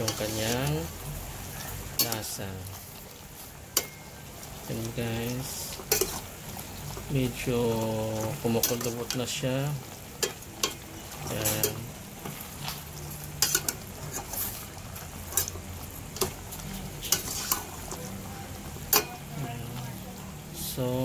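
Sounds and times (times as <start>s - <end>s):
spoon clinking against pot: 3.7s - 4.2s, 10.2s - 10.8s, 13.4s - 13.8s, 18.9s - 19.2s
spoon scraping in pot: 5.6s - 7.1s, 10.2s - 18.1s.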